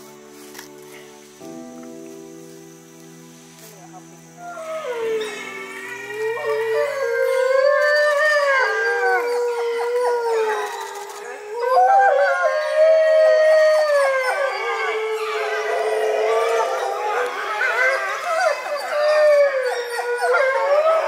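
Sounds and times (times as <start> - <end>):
wolves howling: 4.4 - 21.0.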